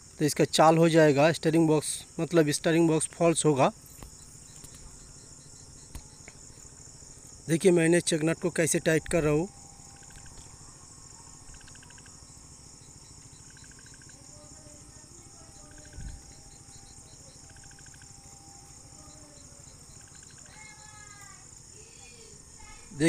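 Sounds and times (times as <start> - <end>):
crickets chirping: 0.0 - 23.0.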